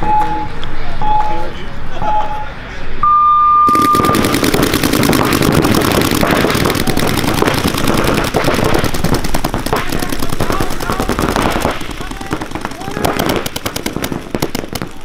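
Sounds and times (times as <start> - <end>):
paintball markers firing rapidly: 3.7 - 15.0.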